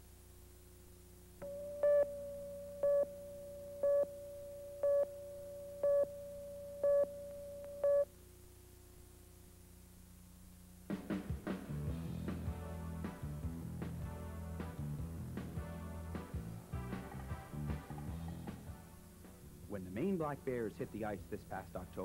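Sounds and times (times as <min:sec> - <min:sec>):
faint low hum: 0:00.0 - 0:11.0
beeps: 0:01.4 - 0:08.1
steady test tone: 0:01.4 - 0:08.1.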